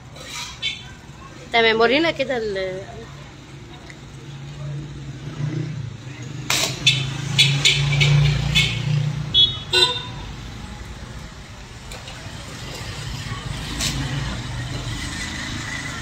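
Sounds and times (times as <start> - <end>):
car horn beeps: 6.8 - 10.3.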